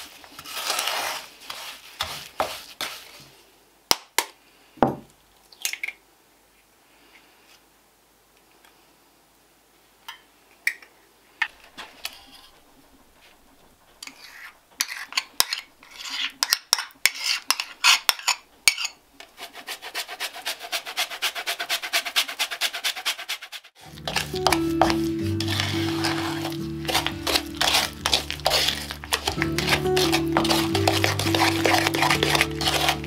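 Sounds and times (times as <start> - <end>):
wooden spatula beating mixture: 0.0 - 3.4, 11.7 - 33.0
metal spoon scraping a bowl: 14.0 - 33.0.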